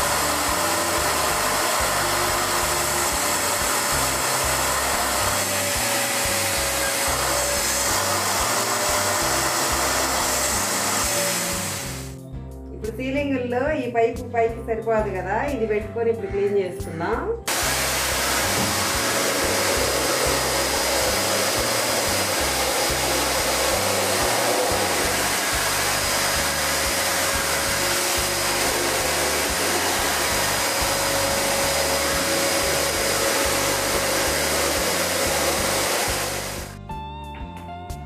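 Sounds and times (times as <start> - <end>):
vacuum cleaner running: 0.0 - 12.2, 17.5 - 36.8
guitar music: 16.3 - 38.0.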